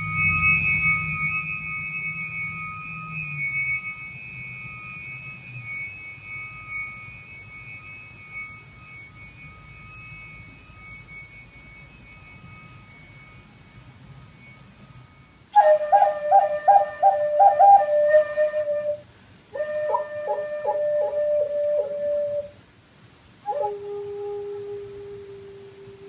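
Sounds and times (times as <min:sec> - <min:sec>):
tuning forks ringing: 0:00.0 - 0:19.2
faint low hum: 0:00.0 - 0:26.0.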